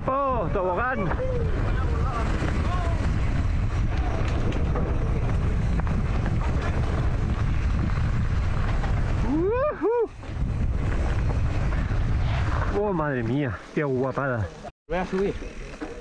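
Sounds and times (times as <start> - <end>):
wind buffeting microphone: 0.0 - 12.9
person whooping: 1.0 - 1.7, 9.2 - 10.2.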